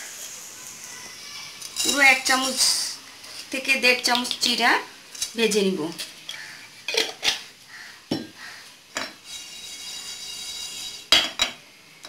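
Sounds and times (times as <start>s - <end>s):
metal utensils clinking on pan: 1.6s - 2.9s, 6.0s - 7.5s, 9.0s - 11.6s
seeds rattling in a pan: 1.6s - 6.6s, 9.2s - 11.1s.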